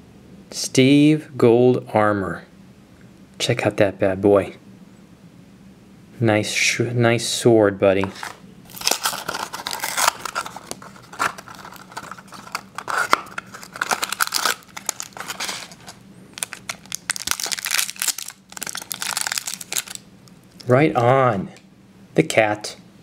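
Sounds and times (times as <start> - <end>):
foil wrapper crinkling and tearing: 8.1 - 20.7.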